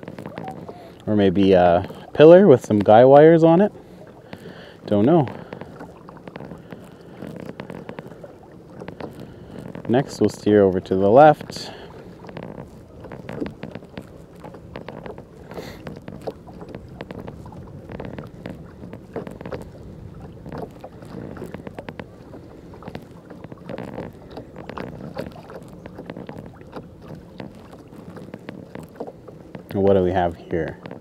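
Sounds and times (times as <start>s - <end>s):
water lapping against hull: 0.0s - 31.0s
small clicks and knocks: 12.2s - 19.7s.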